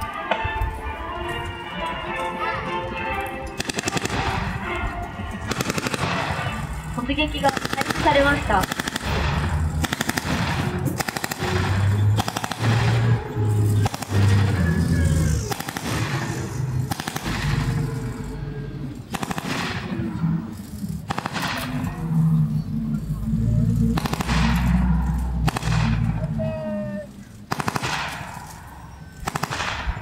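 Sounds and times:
low engine rumble: 0.0 - 30.0
automatic gunfire bursts: 3.6 - 4.6, 5.4 - 18.0, 19.1 - 20.1, 21.0 - 21.9, 23.9 - 24.8, 25.4 - 26.1, 27.5 - 28.6, 29.2 - 30.0.

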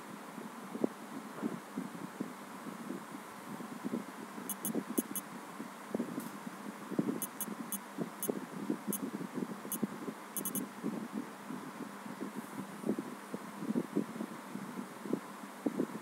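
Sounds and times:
low background noise: 0.0 - 16.0
phone keyboard clicks: 4.5 - 5.2, 7.2 - 7.4, 10.4 - 10.6.

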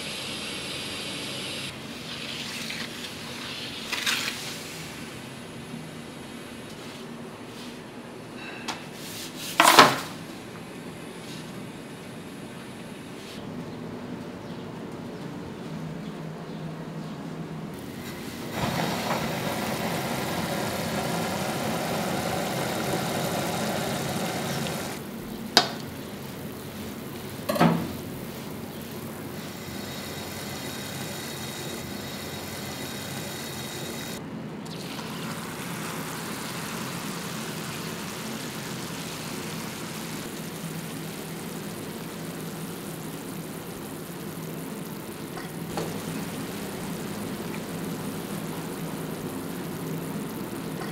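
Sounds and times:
syrup boiling in a saucepan: 18.2 - 25.0, 34.9 - 50.9.

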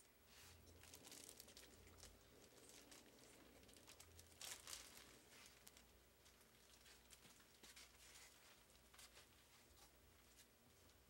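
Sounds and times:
plastic bag crinkling: 0.6 - 9.4.

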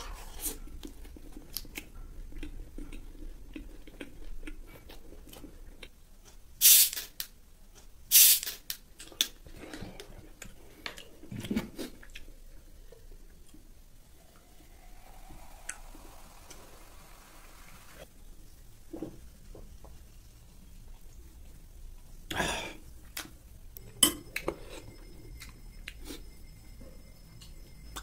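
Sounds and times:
chewing: 0.3 - 6.5
bottle opening gas hiss: 6.6 - 7.1, 8.1 - 8.6.

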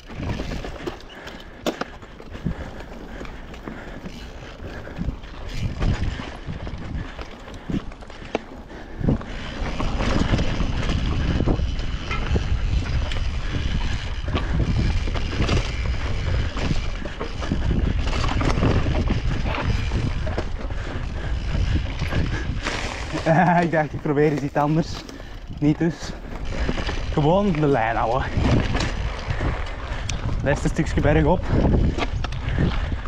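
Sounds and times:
bike knocking and rattling: 0.0 - 33.0
tyres rolling on dirt: 0.0 - 33.0
wind buffeting microphone: 0.0 - 33.0.

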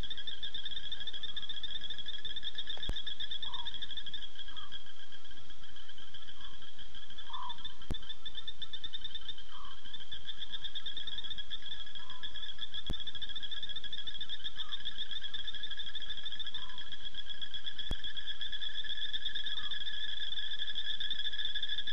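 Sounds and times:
high pulsing insect trill: 0.0 - 21.9
short low frog calls: 0.0 - 21.9.

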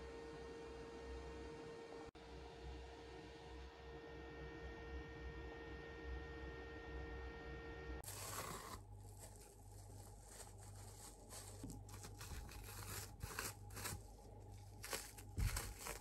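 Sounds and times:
faint rustling and crinkling: 8.0 - 16.0.

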